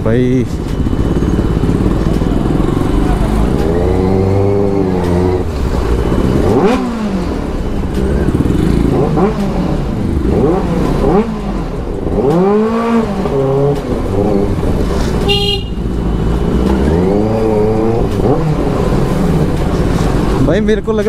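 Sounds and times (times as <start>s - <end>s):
motorbike engine revving: 0.0s - 21.0s
horn beeping: 15.2s - 17.3s.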